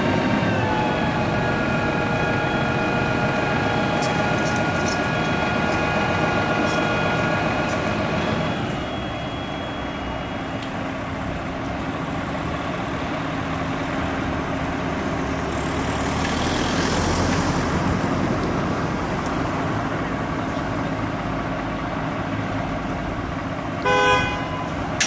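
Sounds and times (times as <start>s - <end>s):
hydraulic whine: 0.0s - 14.1s
diesel engine humming: 0.0s - 25.0s.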